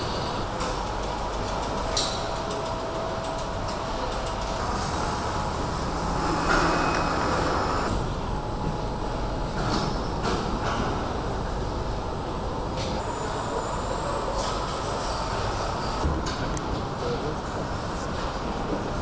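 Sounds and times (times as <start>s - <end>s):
machinery rumble and hum: 0.0s - 19.0s
loud rushing noise: 4.6s - 7.9s.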